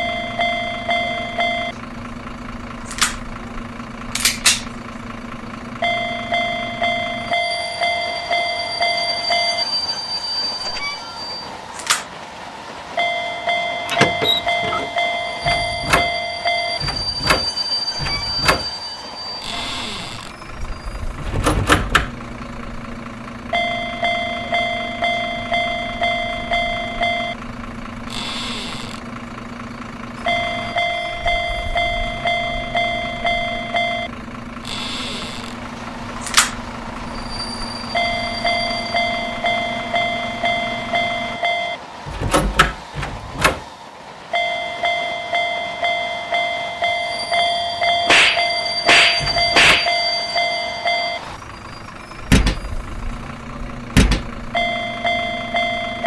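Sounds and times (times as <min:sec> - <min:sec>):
railroad crossing bell ringing: 0:00.0 - 0:01.8, 0:05.8 - 0:11.6, 0:12.9 - 0:19.9, 0:23.5 - 0:27.4, 0:30.2 - 0:34.1, 0:37.2 - 0:42.0, 0:44.3 - 0:51.3, 0:54.5 - 0:56.0
passing train rumble: 0:00.0 - 0:19.5, 0:35.6 - 0:56.0
loud wheel clacks: 0:47.9 - 0:50.1.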